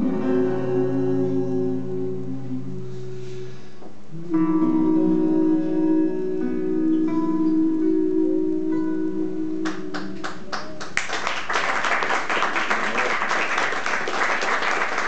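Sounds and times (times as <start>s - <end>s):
audience applauding: 9.9s - 15.0s.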